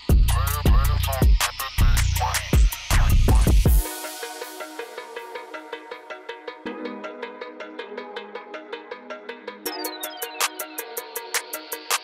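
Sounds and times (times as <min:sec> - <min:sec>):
music with ticking beat: 0:00.0 - 0:12.0.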